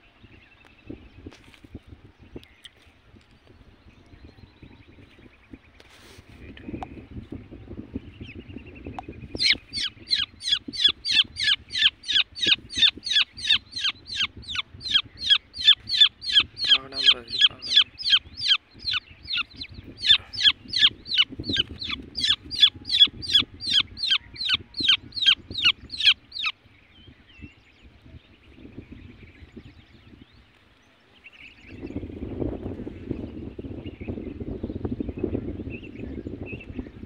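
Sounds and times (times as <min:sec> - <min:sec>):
bird chick peeping: 0:08.2 - 0:26.6.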